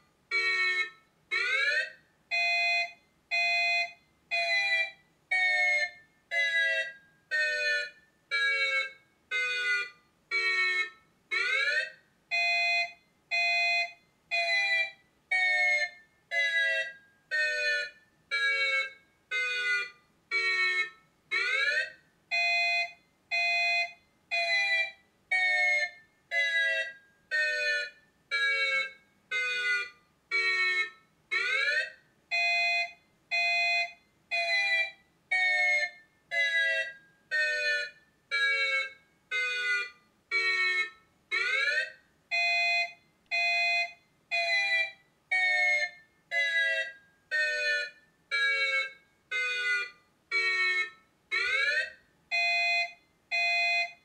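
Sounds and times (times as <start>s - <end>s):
electronic warning siren beeps: 12.3s - 31.7s, 32.3s - 54.0s.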